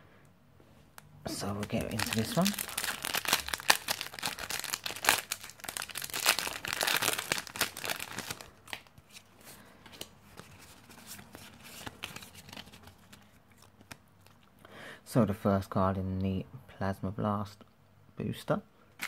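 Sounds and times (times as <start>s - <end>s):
foil wrapper tearing and crinkling: 1.4s - 8.9s.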